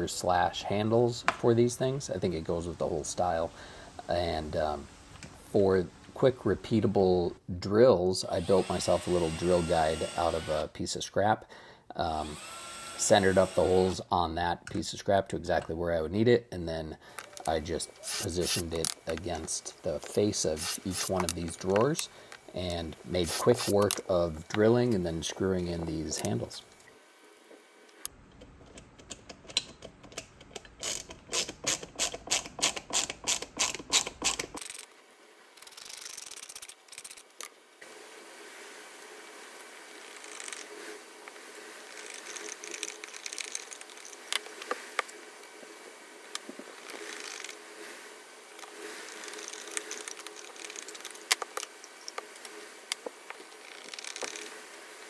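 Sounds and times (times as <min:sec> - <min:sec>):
soft hiss: 0:00.0 - 0:28.1, 0:34.6 - 0:55.0
faint steady hum: 0:00.0 - 0:31.5
ratcheting screwdriver clicking: 0:49.2 - 0:52.2.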